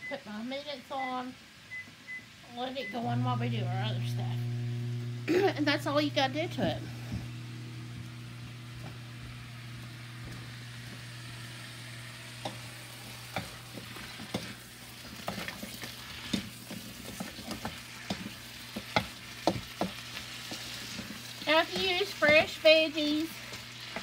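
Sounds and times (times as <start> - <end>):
vegetables sizzling in a wok: 2.3 - 24.0
steady low hum: 2.9 - 24.0
utensil scraping and knocking pan: 12.4 - 22.6.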